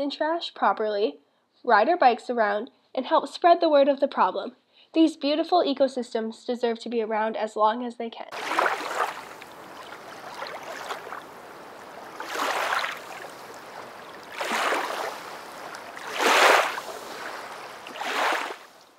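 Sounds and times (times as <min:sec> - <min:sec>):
rushing water: 0:08.3 - 0:18.9.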